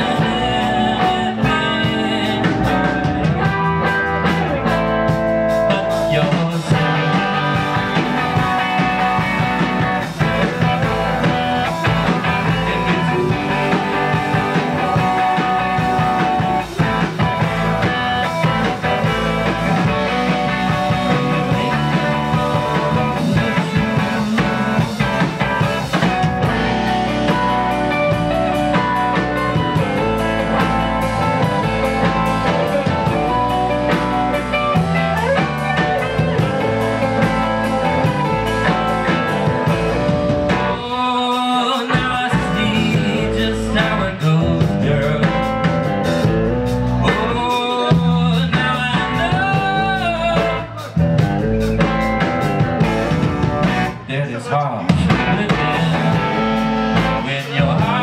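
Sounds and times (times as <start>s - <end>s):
man singing: 0.0s - 4.0s, 5.5s - 27.6s, 40.5s - 46.3s, 47.0s - 51.3s, 54.0s - 58.0s
rock band playing: 0.0s - 58.0s.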